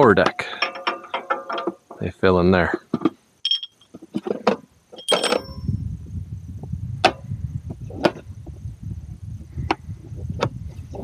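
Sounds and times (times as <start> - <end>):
metal scraping: 0.0 - 2.1, 3.5 - 5.8
metal brackets clanking: 0.0 - 2.2, 2.9 - 5.7.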